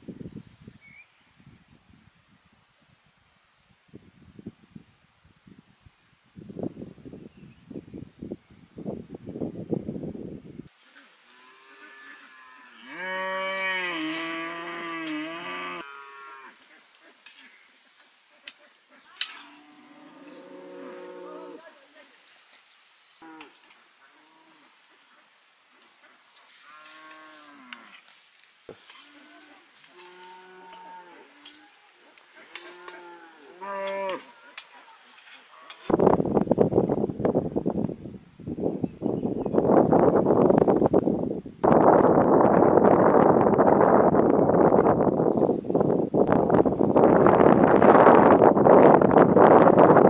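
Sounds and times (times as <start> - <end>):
cow mooing: 11.3 - 16.6, 19.4 - 21.6, 30.0 - 31.6, 32.5 - 34.3.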